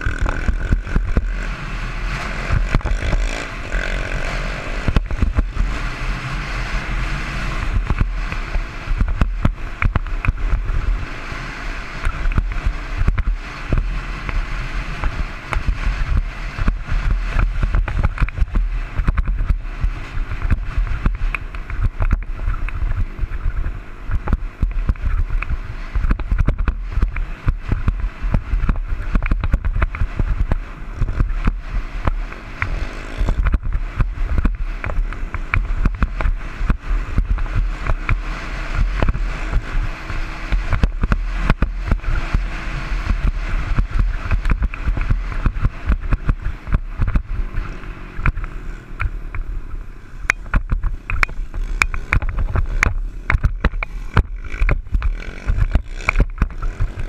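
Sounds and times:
sharp knocks over bumps: 0.0s - 1.5s, 2.4s - 4.2s, 7.6s - 11.0s, 12.0s - 49.6s, 50.2s - 57.0s
muffled dirt bike engine: 0.0s - 57.0s
wind buffeting microphone: 12.0s - 57.0s.

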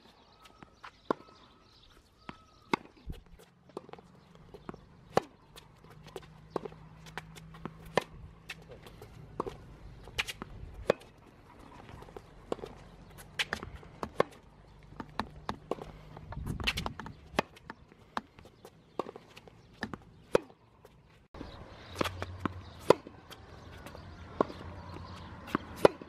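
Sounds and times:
tennis ball bouncing: 0.5s - 26.0s
racket hitting tennis ball: 2.4s - 20.6s, 21.9s - 26.0s.

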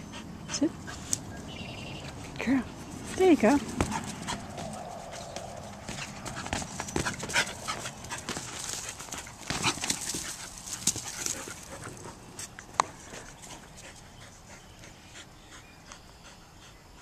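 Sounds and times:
scuffs on gravelly dirt: 1.9s - 13.6s
dog panting: 2.0s - 17.0s.

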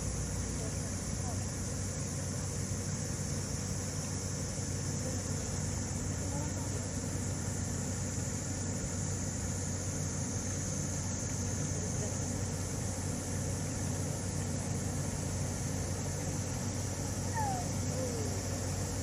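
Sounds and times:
steady low hum: 0.0s - 19.0s
distant murmur of voices: 0.3s - 2.2s, 4.7s - 7.5s, 11.5s - 12.6s, 17.2s - 19.0s.

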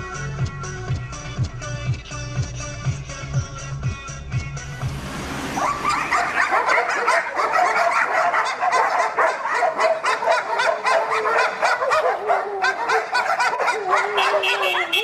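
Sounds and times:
dogs barking: 5.6s - 15.0s.

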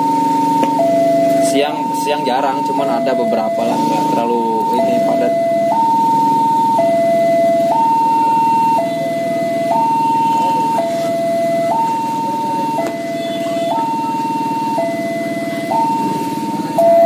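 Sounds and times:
level crossing two-tone alarm: 0.0s - 17.0s.

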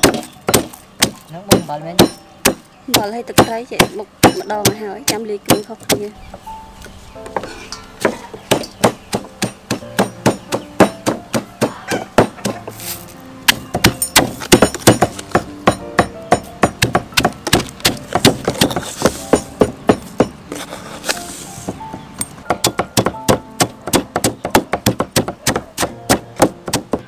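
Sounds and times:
stone pestle pounding in mortar: 0.0s - 6.1s, 7.4s - 12.8s, 13.5s - 20.4s, 22.5s - 27.0s.

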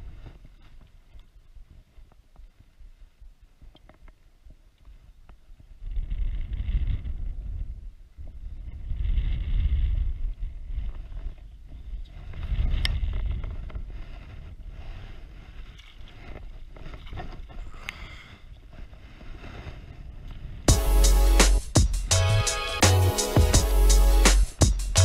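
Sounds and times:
wind buffeting microphone: 5.7s - 15.6s.

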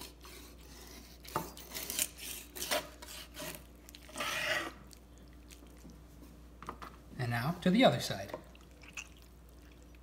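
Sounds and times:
knife scraping along bone: 0.0s - 4.8s.

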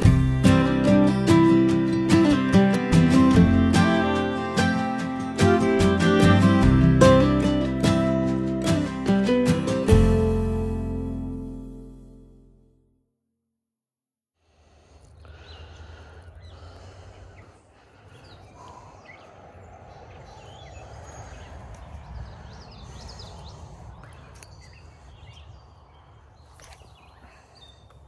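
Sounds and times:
birds chirping: 14.7s - 28.0s
steady low rumble: 15.8s - 26.5s.

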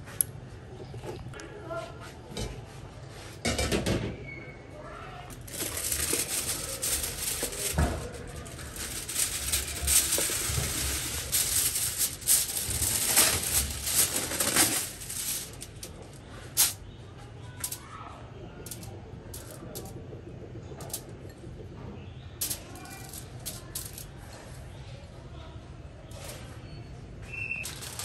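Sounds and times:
aluminium foil crinkling: 5.3s - 16.8s, 27.4s - 28.0s.

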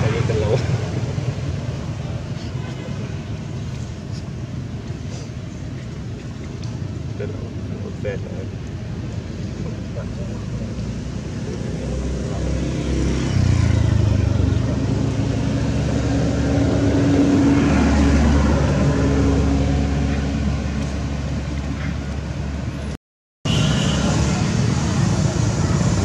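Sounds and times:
vehicle engine passing: 9.8s - 22.1s.

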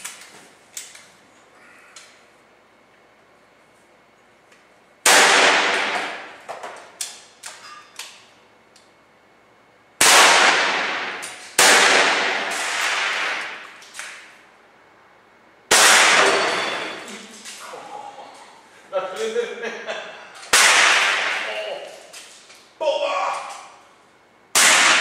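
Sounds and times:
air rifle shots: 5.0s - 6.4s, 10.0s - 13.8s, 15.7s - 16.9s, 20.5s - 21.7s, 24.5s - 25.0s.

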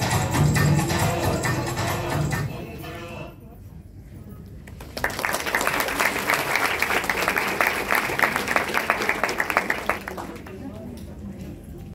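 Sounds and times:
audience applauding: 4.8s - 10.8s.

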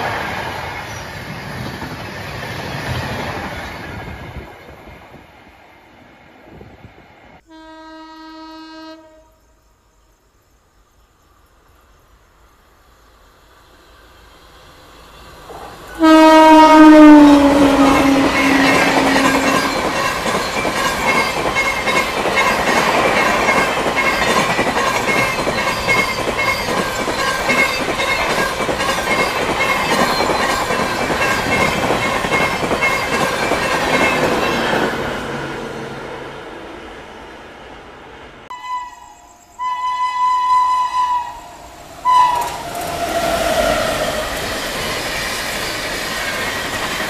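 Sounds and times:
loud train horn: 7.4s - 9.6s, 15.9s - 20.4s, 38.5s - 44.3s
train approaching rumble: 11.2s - 47.0s.

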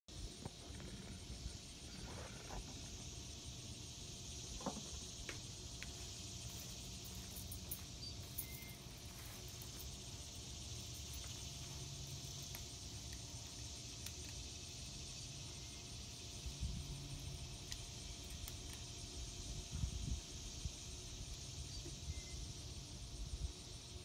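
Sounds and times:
insect drone: 0.1s - 24.0s.

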